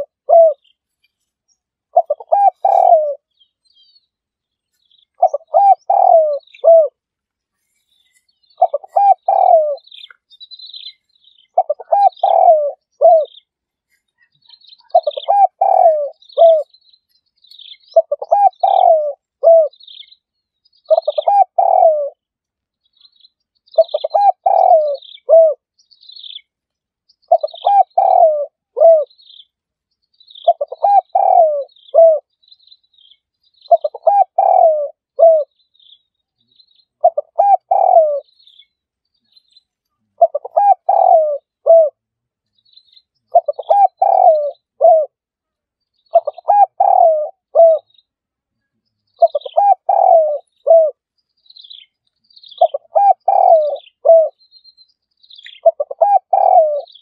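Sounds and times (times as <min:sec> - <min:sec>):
dove cooing: 0:00.0 - 0:00.7, 0:01.9 - 0:03.3, 0:05.1 - 0:07.0, 0:08.6 - 0:10.1, 0:10.8 - 0:13.4, 0:14.7 - 0:16.7, 0:17.9 - 0:19.9, 0:20.9 - 0:22.2, 0:23.8 - 0:25.6, 0:27.3 - 0:29.1, 0:30.4 - 0:32.3, 0:33.7 - 0:35.5, 0:37.0 - 0:38.3, 0:40.2 - 0:42.0, 0:43.3 - 0:45.2, 0:46.1 - 0:47.9, 0:49.2 - 0:51.0, 0:52.6 - 0:54.4, 0:55.4 - 0:57.0
small birds chirping: 0:00.0 - 0:57.0.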